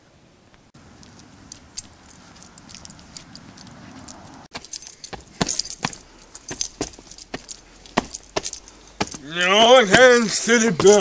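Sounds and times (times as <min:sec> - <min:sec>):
keys and chain jingling: 0:01.9 - 0:09.2, 0:10.8 - 0:11.0.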